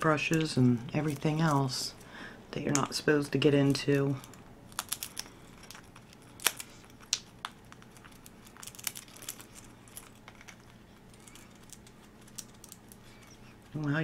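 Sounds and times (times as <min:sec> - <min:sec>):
parrot chewing and cracking wood: 0:03.7 - 0:14.0.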